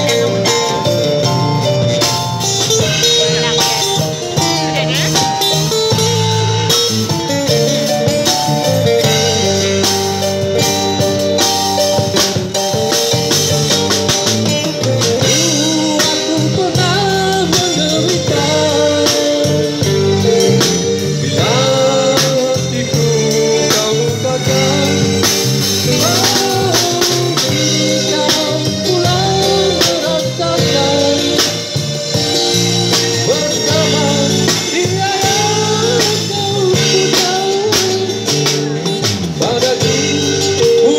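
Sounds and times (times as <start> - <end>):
drum kit: 0.0 - 40.9
electric guitar: 0.0 - 40.9
keyboard: 0.0 - 40.9
man singing into a microphone: 15.2 - 40.9.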